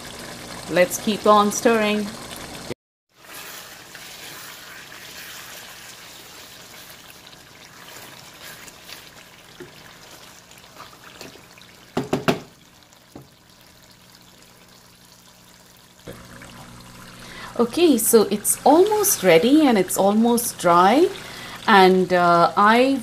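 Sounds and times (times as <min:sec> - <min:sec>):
curry bubbling in a pan: 0:02.2 - 0:19.7
wooden spatula stirring: 0:03.2 - 0:11.5
meat and liquid sloshing: 0:03.2 - 0:11.8
knocks: 0:12.0 - 0:12.5.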